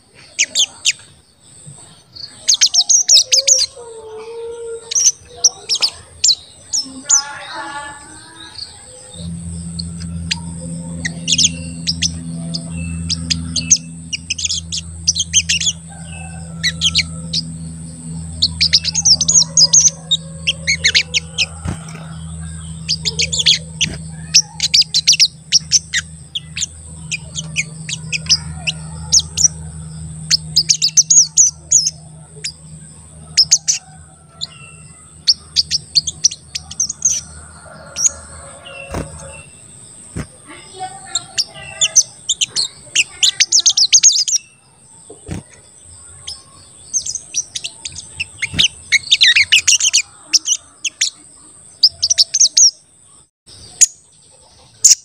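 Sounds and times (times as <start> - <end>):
bird chirping rapidly: 0.3 - 1.0, 2.2 - 3.8, 4.8 - 52.8
low hum: 2.7 - 52.5
high thin whine: 6.9 - 40.6.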